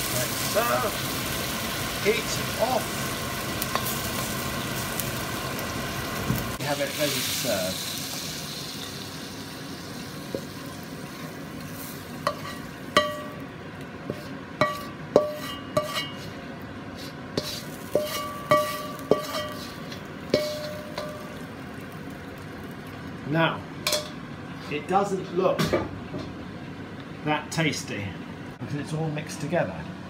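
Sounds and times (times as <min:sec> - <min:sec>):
utensil scraping metal wok: 0:00.0 - 0:09.1, 0:09.7 - 0:13.4, 0:14.0 - 0:21.6
faint sizzle of hot pan: 0:00.0 - 0:27.8.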